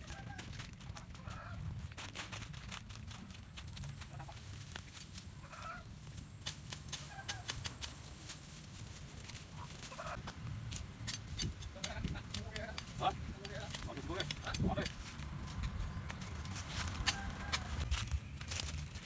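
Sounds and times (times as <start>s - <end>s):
chickens clucking: 0.0s - 1.7s, 3.8s - 4.6s, 5.3s - 5.9s, 6.9s - 7.9s, 9.5s - 10.4s
dry leaves and twigs crackling: 0.0s - 19.0s.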